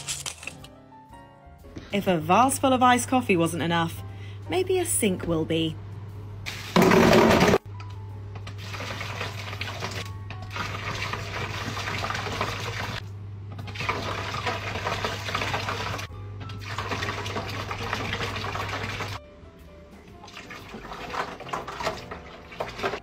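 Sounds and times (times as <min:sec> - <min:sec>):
liquid pouring and splashing over ice: 0:08.6 - 0:13.0, 0:13.7 - 0:19.2, 0:20.2 - 0:23.0.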